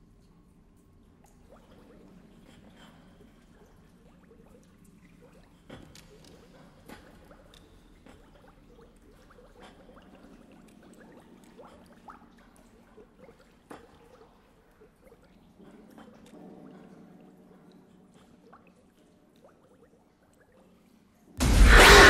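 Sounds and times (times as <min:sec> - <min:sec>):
faint water trickling: 0:00.0 - 0:21.4
water drips: 0:00.0 - 0:21.4.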